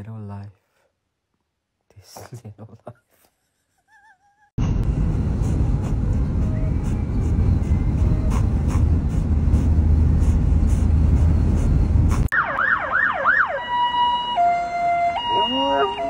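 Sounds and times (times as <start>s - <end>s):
road rumble: 4.6s - 16.0s
police siren: 12.3s - 16.0s.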